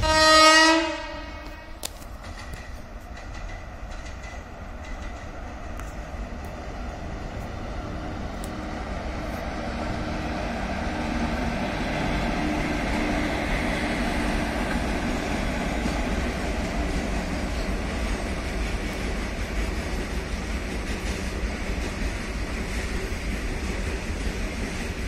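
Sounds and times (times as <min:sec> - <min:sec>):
locomotive motors humming: 0:00.8 - 0:25.0
wheel-on-rail noise: 0:01.4 - 0:25.0.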